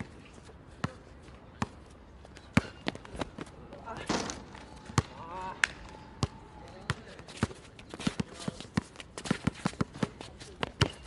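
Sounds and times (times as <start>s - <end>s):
basketball bouncing on asphalt: 4.8s - 5.2s, 6.2s - 11.0s.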